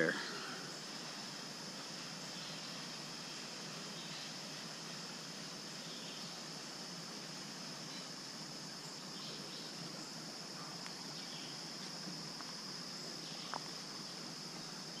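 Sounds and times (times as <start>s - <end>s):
faint hiss: 0.0s - 15.0s
high-pitched insect chorus: 0.0s - 15.0s.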